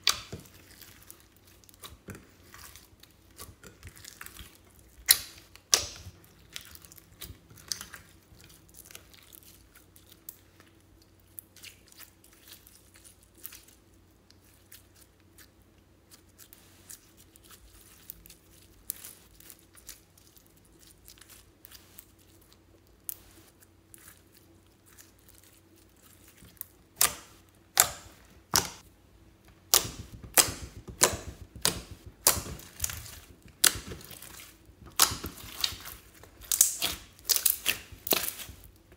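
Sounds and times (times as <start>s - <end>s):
slime crackling and clicking: 0.0s - 9.2s, 26.6s - 28.8s, 29.4s - 38.9s.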